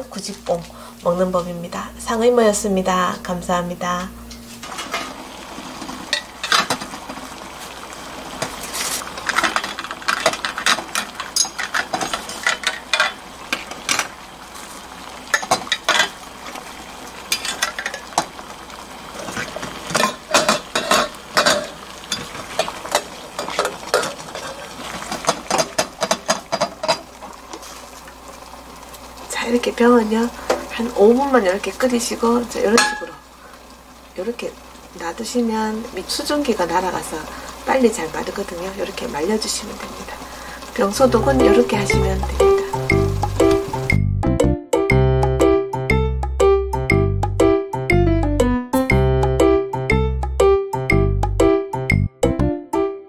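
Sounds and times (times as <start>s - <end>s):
boiling water bubbling: 4.6s - 44.0s.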